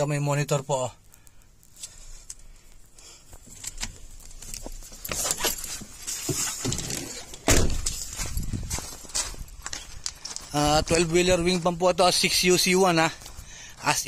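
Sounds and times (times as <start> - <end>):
loud thump: 7.4 - 7.9.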